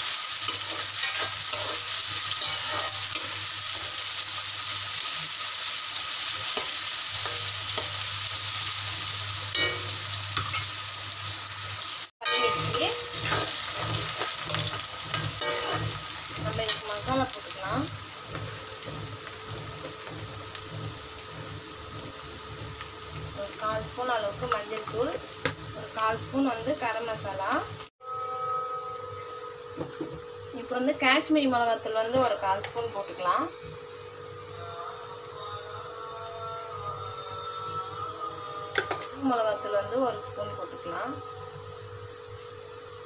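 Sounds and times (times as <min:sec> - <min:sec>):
vegetables sizzling in hot oil: 0:00.0 - 0:27.9, 0:29.1 - 0:43.0
metal spatula scraping: 0:00.4 - 0:04.2, 0:06.3 - 0:08.2, 0:09.4 - 0:10.8, 0:12.2 - 0:27.3.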